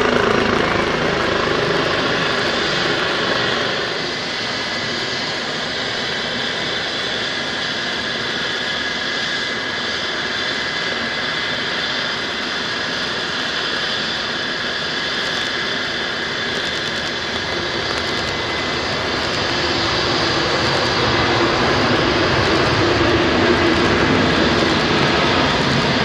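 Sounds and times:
aircraft turbine engines running: 0:00.0 - 0:26.0.

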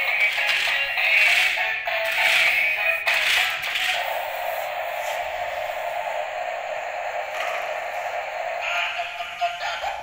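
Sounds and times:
toy truck motors whirring: 0:00.0 - 0:05.6.

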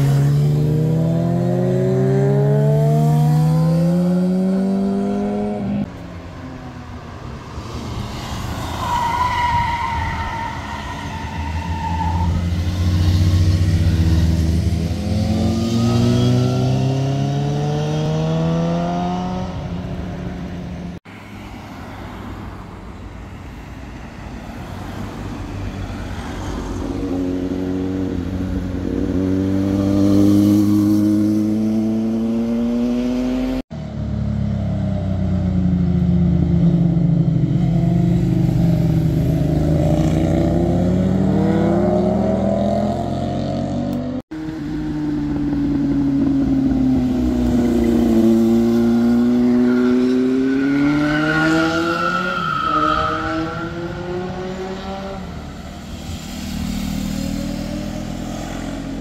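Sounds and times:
motorcycles accelerating past: 0:00.0 - 0:05.9, 0:12.5 - 0:19.8, 0:27.0 - 0:33.6, 0:36.2 - 0:52.0, 0:53.1 - 0:59.0.

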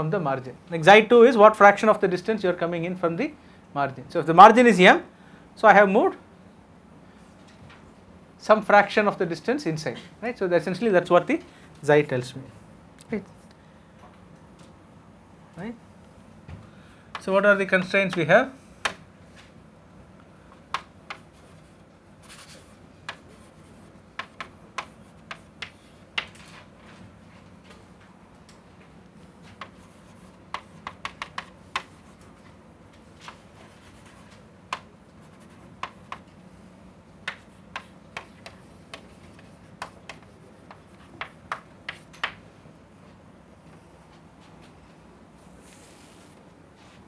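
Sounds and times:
chalk tapping on chalkboard: 0:20.7 - 0:21.5, 0:22.2 - 0:26.4, 0:29.4 - 0:32.2, 0:33.2 - 0:36.3, 0:37.2 - 0:42.4
chalk scraping: 0:21.1 - 0:25.8.

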